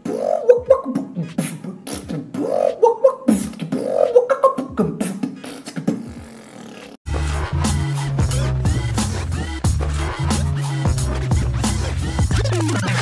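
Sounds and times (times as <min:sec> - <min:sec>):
beatbox kick and snare clicks: 0:00.0 - 0:02.4, 0:03.3 - 0:06.3
beatboxing lip bass: 0:00.0 - 0:13.0.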